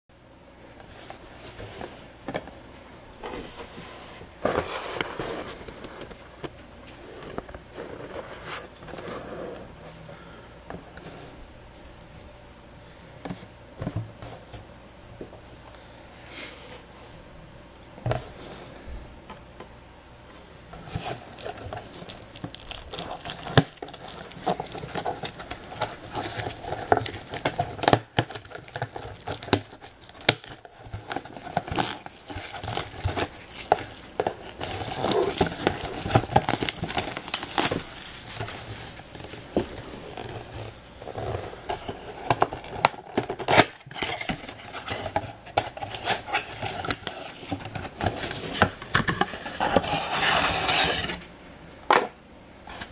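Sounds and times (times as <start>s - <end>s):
shrink-wrap tearing and crinkling: 20.8s - 51.2s.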